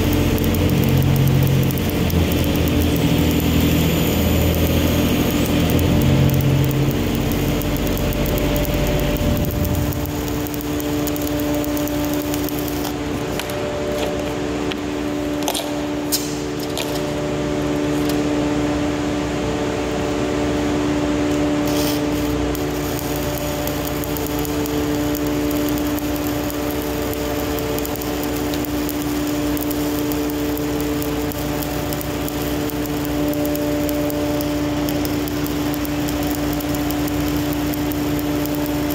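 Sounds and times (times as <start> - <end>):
welding arc crackling hiss: 0.0 - 18.9, 19.6 - 38.9
steady machine hum: 0.0 - 38.9.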